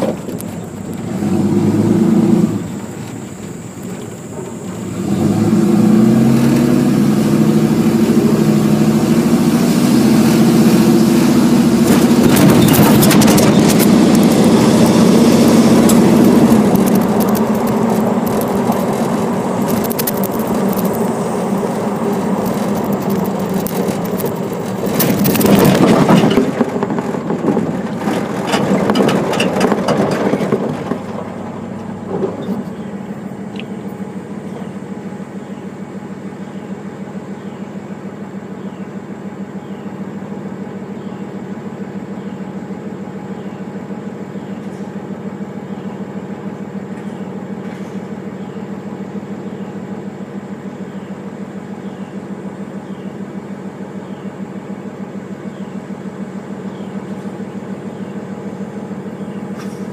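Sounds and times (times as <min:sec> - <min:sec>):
car engine running loudly: 0:00.0 - 0:59.9
scraping and knocking noises: 0:11.7 - 0:32.8.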